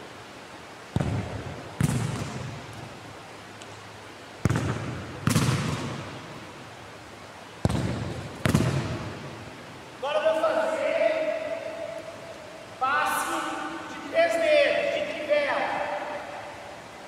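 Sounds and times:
ball kicked hard: 0.9 - 2.5, 4.4 - 6.0, 7.6 - 9.1
ball hitting wall: 0.9 - 2.6, 4.4 - 6.2, 7.7 - 9.1.

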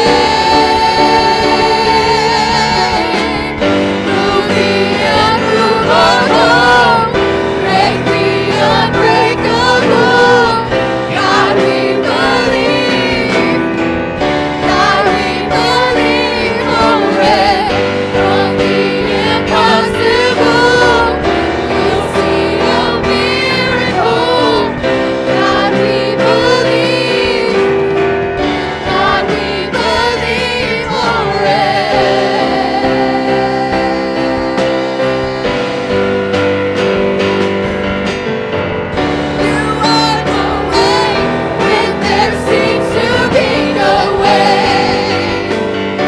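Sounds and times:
group singing in harmony: 0.0 - 46.0
instrumental accompaniment: 0.0 - 46.0.

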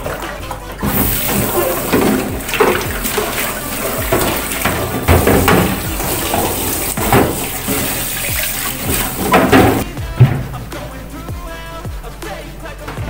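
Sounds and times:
water running from a tap: 0.8 - 9.8
knocks of things being handled: 0.8 - 10.8.

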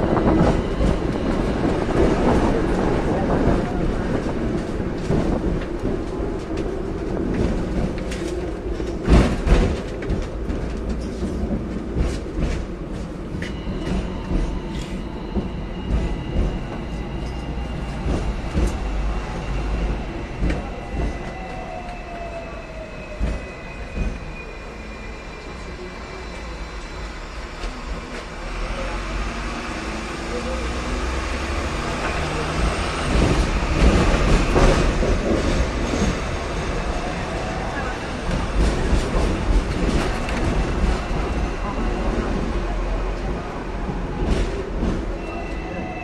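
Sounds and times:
wheels clattering on track: 0.0 - 21.4
tram rumbling on rails: 0.0 - 46.0.

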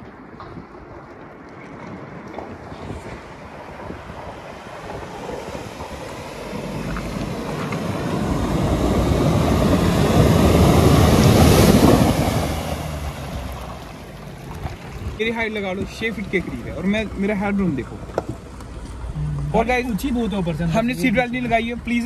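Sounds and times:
tyres splashing through water: 0.0 - 22.0
diesel engine driving past: 4.2 - 15.0.

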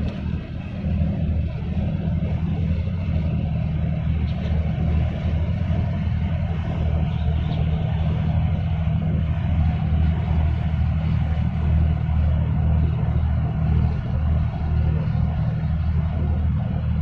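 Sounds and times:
ship diesel engine rumble: 0.0 - 17.0.

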